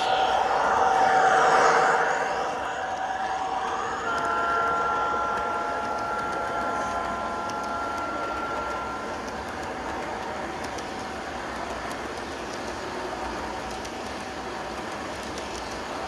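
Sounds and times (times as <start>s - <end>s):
model train wheels rolling: 0.0s - 16.0s
model locomotive horn chord: 3.5s - 9.5s.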